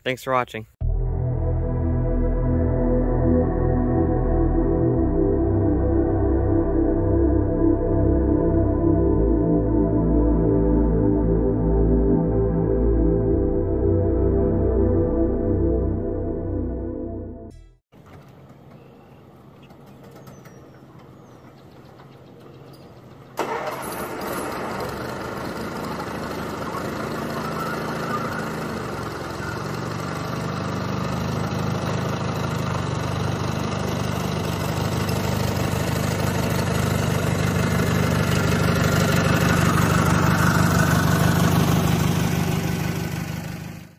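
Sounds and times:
garden tractor engine running: 0:18.0 - 0:43.9.

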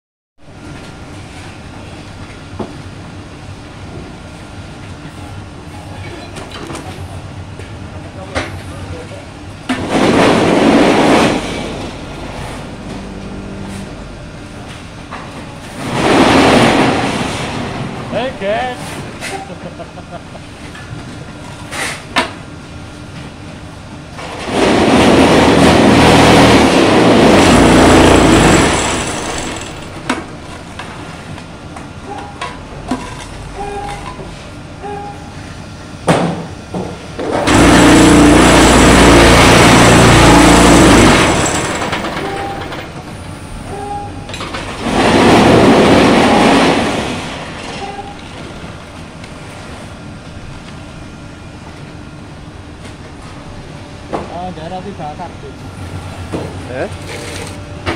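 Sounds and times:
block press machine running: 0:24.1 - 0:34.3, 0:36.0 - 0:48.9.

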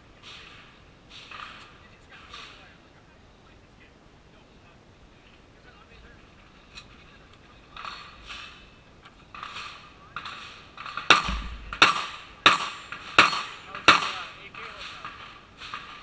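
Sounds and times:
gunshots: 0:09.4 - 0:16.0.

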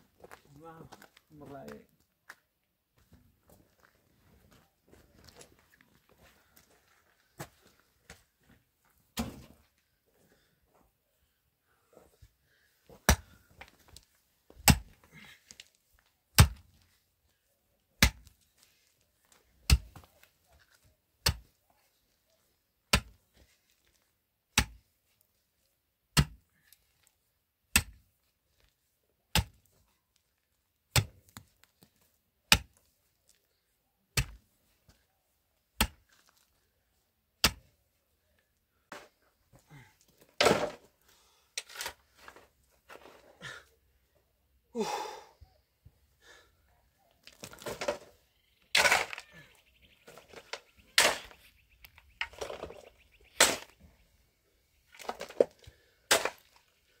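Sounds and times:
pick striking hard earth: 0:14.6 - 0:15.0, 0:16.4 - 0:16.8, 0:18.0 - 0:18.3, 0:30.9 - 0:31.2, 0:34.2 - 0:34.4, 0:40.4 - 0:40.9, 0:48.7 - 0:49.2, 0:50.3 - 0:51.4, 0:52.2 - 0:53.9, 0:55.0 - 0:56.6
shovel scraping dirt: 0:47.3 - 0:51.6, 0:52.2 - 0:53.9, 0:55.0 - 0:56.6.

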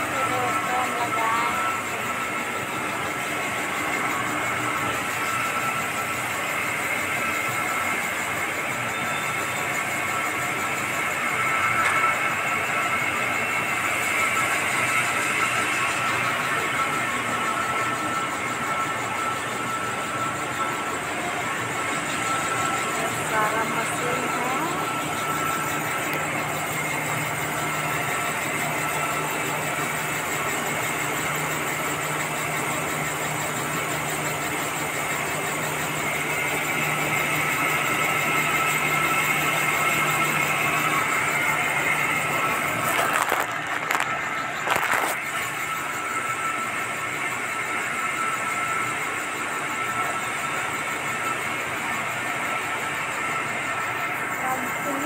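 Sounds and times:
mill machinery humming and whining: 0:00.0 - 0:55.0.

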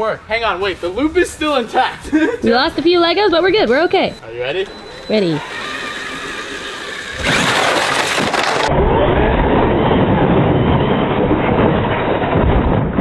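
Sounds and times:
rc truck electric motor: 0:04.9 - 0:08.7
plastic blocks crashing: 0:07.2 - 0:08.7.

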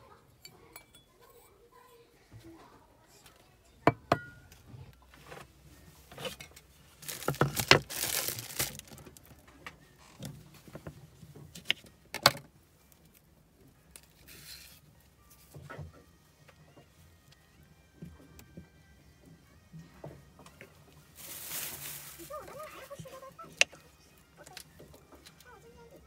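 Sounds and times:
knocks and clinks on countertop: 0:03.9 - 0:04.4
rustling: 0:05.1 - 0:10.8, 0:21.0 - 0:23.7.

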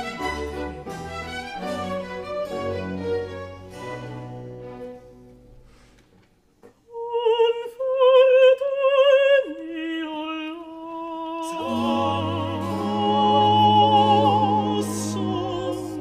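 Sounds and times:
classical voices singing: 0:06.9 - 0:16.0.

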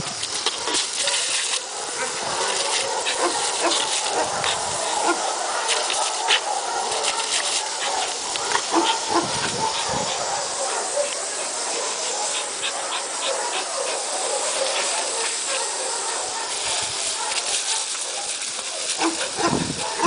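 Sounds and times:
water ticking on stones: 0:00.0 - 0:09.1, 0:17.0 - 0:20.0
hose water jet hissing: 0:00.0 - 0:20.0
water spattering on gravel: 0:00.0 - 0:20.0.

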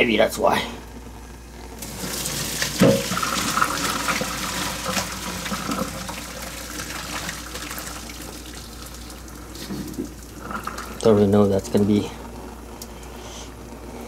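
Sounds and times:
water splashing and draining: 0:01.8 - 0:11.3
water pouring into a colander: 0:01.8 - 0:11.4.

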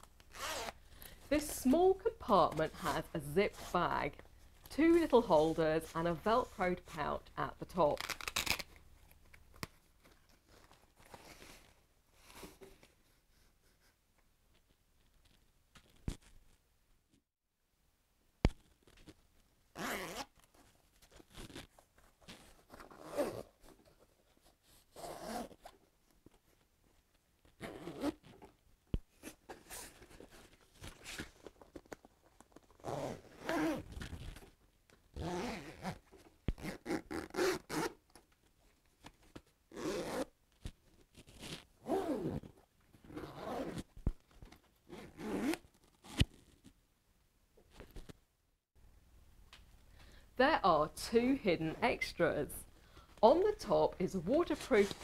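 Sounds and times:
zips pulled open and shut: 0:00.2 - 0:00.8, 0:08.0 - 0:08.8, 0:19.8 - 0:20.5, 0:21.2 - 0:21.7, 0:22.3 - 0:23.6, 0:24.9 - 0:25.7, 0:27.5 - 0:28.5, 0:32.8 - 0:34.4, 0:35.1 - 0:38.0, 0:39.7 - 0:40.4, 0:41.1 - 0:43.9, 0:44.9 - 0:46.5.

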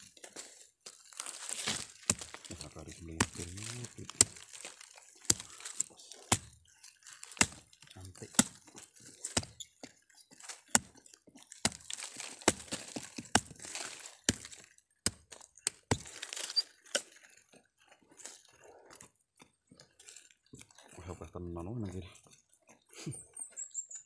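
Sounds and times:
rustling soil and dry leaves: 0:00.0 - 0:24.0
soil scraping and crumbling: 0:00.0 - 0:24.0
machete chopping into earth: 0:05.2 - 0:06.6, 0:07.2 - 0:08.6, 0:11.6 - 0:17.0.

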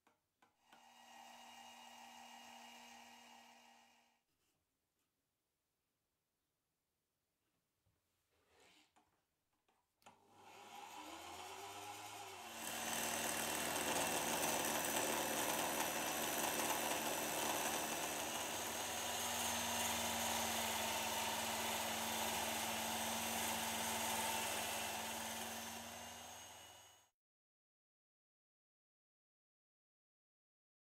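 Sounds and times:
electric drill motor humming: 0:00.7 - 0:04.0, 0:10.2 - 0:27.1
gouge hissing cutting wood: 0:10.6 - 0:26.9.

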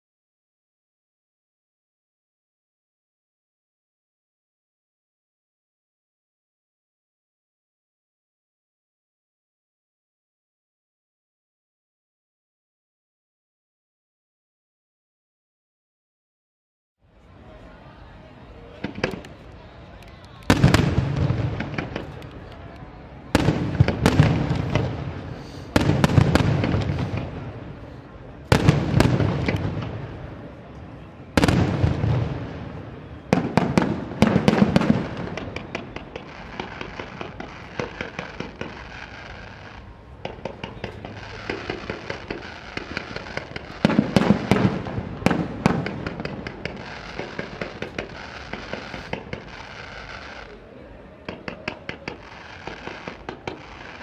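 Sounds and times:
firework crackling: 0:18.6 - 0:54.0.

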